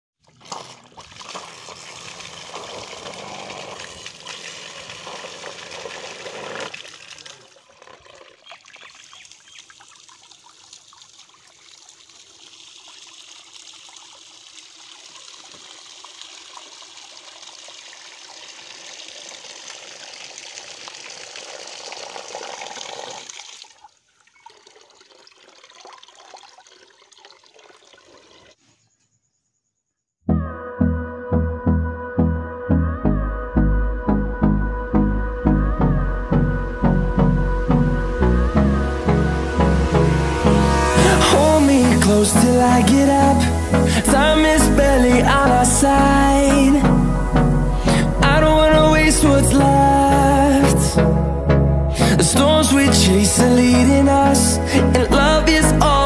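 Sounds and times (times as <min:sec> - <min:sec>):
water gushing into bucket: 0:00.2 - 0:28.6.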